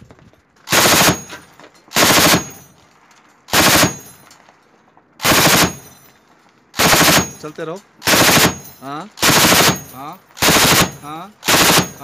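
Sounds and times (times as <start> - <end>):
machine gun bursts: 0.7 - 1.3, 2.0 - 2.6, 3.5 - 4.0, 5.2 - 5.8, 6.8 - 7.4, 8.0 - 12.0.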